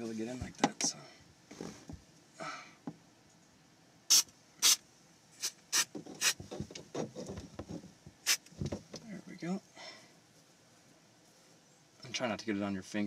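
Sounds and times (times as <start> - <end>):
aerosol spray bursts: 4.1 - 4.8, 5.4 - 6.4, 8.2 - 8.5.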